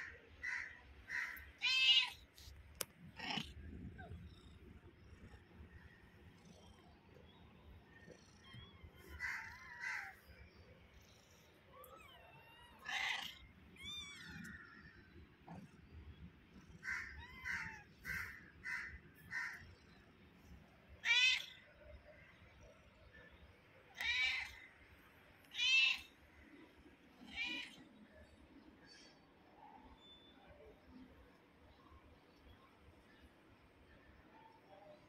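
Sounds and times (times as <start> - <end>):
kittens mewing: 11.7 - 14.5, 16.8 - 18.4.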